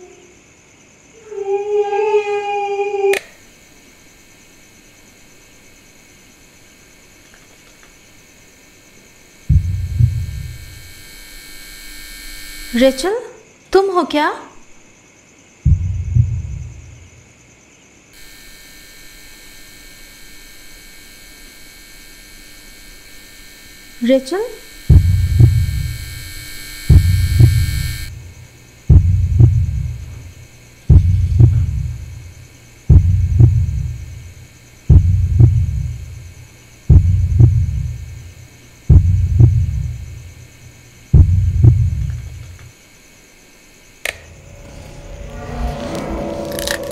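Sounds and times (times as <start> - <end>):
faint hum and hiss: 0.0 - 46.9
faint steady drone: 3.3 - 13.2, 18.2 - 46.9
deep low thuds: 9.5 - 10.6, 15.7 - 17.1, 24.9 - 26.0, 26.9 - 28.3, 28.9 - 30.2, 30.9 - 32.3, 32.9 - 34.2, 34.9 - 36.2, 36.9 - 38.1, 38.9 - 40.2, 41.2 - 42.1
heartbeat thumps: 9.5 - 10.8, 15.6 - 17.1, 24.8 - 26.1, 26.8 - 28.2, 28.9 - 30.3, 30.9 - 32.3, 32.9 - 34.3, 34.9 - 36.2, 36.9 - 38.2, 38.9 - 40.2, 41.1 - 42.4.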